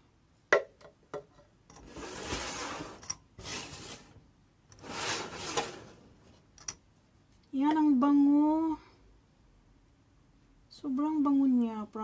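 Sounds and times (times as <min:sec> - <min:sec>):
jam scraped from metal pot: 0:04.8 - 0:06.0.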